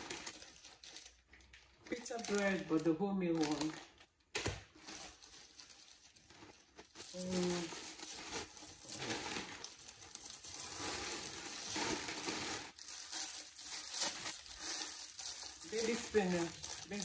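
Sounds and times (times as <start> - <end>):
plastic bag crinkling: 0.0 - 17.0.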